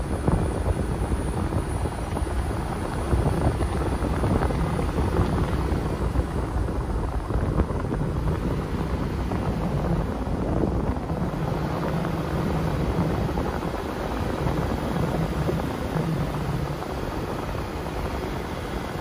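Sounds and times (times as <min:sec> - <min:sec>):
car engine and tyre noise: 0:00.0 - 0:19.0.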